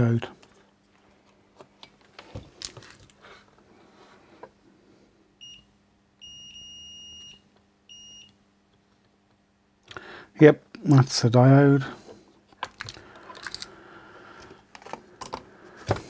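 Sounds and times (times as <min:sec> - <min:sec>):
multimeter beeps: 0:05.4 - 0:08.4.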